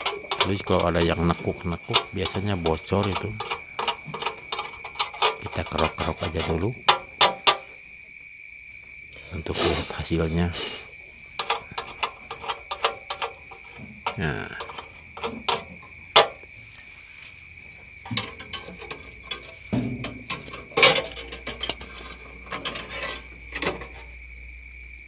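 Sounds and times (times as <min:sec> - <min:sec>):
metal tool scraping weld: 0:00.0 - 0:07.7, 0:11.4 - 0:17.0, 0:18.1 - 0:24.1
insect chirring: 0:00.0 - 0:25.0.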